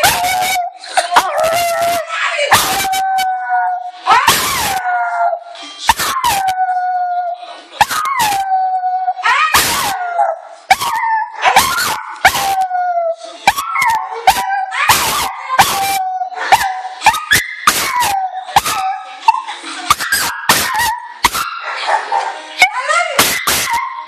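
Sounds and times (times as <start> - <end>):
dog barks and yips: 10.7 - 12.6, 13.5 - 22.4.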